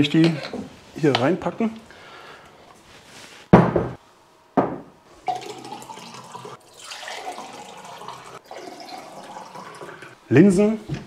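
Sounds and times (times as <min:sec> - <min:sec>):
water pouring into a glass: 0:05.2 - 0:10.2.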